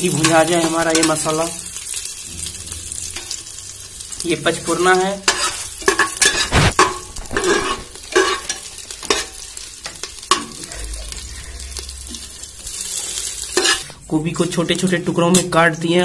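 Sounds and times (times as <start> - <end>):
spices sizzling in oil: 0.0 - 16.0
metal spatula scraping a pot: 1.8 - 14.0.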